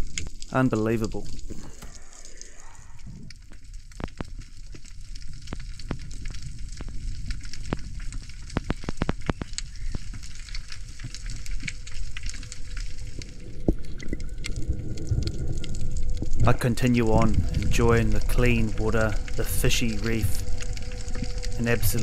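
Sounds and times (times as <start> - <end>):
rumble of moving water: 0.0 - 22.0
sharp clicks underwater: 1.3 - 16.4.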